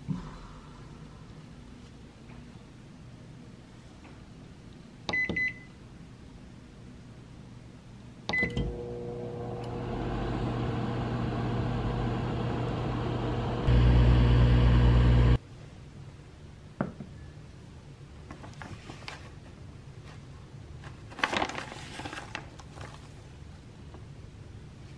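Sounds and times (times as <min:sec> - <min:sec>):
microwave control panel beeps: 0:05.1 - 0:05.7, 0:08.3 - 0:09.0
microwave click: 0:08.3 - 0:15.4
microwave oven humming: 0:08.3 - 0:15.4.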